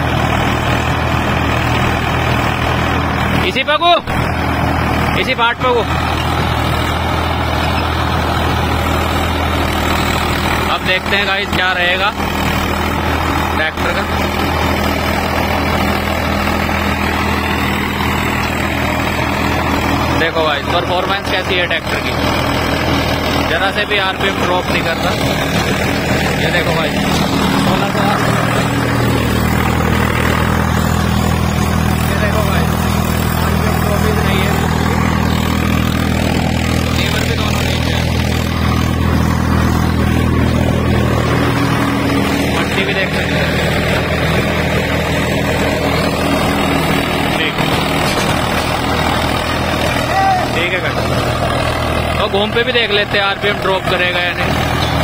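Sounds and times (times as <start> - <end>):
tractor diesel engine running: 0.0 - 55.0
rotavator blades churning soil: 4.2 - 55.0.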